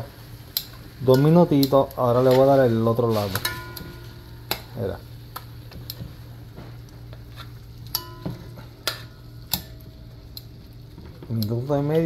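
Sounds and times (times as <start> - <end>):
steady low hum: 0.0 - 12.0
metal tongs clinking on pot: 0.6 - 2.6, 3.3 - 4.8, 7.9 - 10.5.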